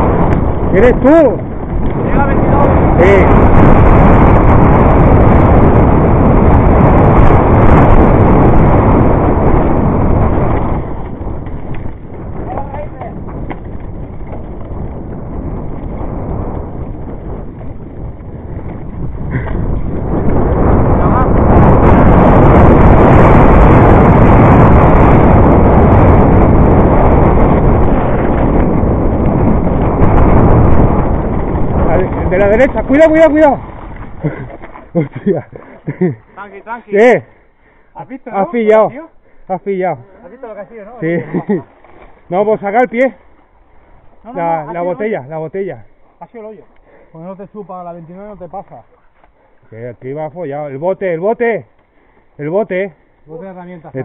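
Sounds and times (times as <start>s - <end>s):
mountain bike rattling on dirt trail: 0.0s - 37.0s, 40.2s - 46.7s
wind rush on microphone: 0.0s - 54.0s.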